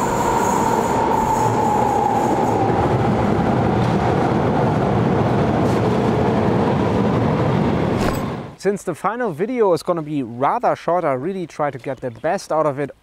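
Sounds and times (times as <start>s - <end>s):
train whine falling in pitch: 0.0s - 4.0s
underground train rumbling: 0.0s - 8.6s.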